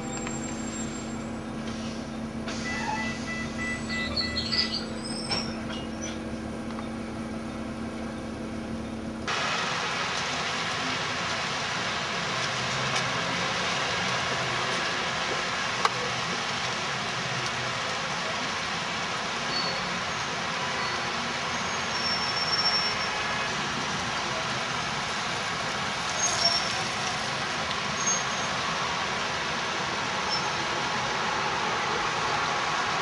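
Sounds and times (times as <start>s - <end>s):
city traffic noise: 0.0s - 33.0s.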